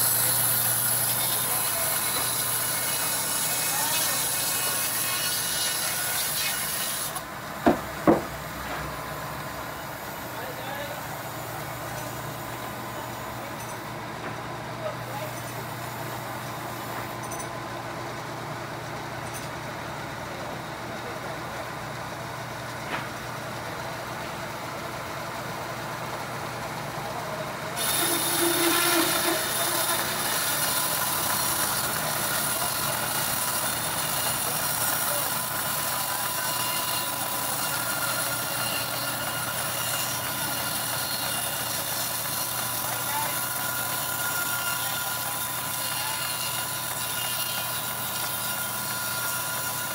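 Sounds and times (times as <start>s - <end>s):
band saw cutting log: 0.0s - 9.1s, 27.8s - 49.9s
sawmill machine hum: 0.0s - 49.9s.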